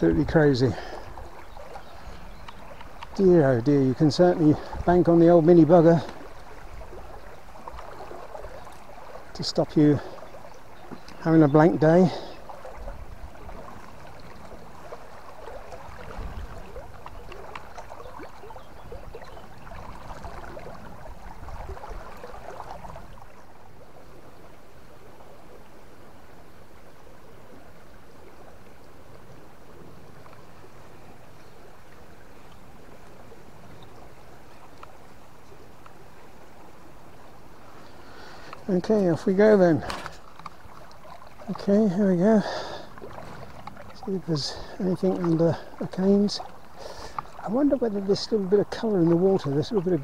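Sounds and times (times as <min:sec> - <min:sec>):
river water running: 0:00.0 - 0:50.0
water sloshing: 0:00.0 - 0:50.0.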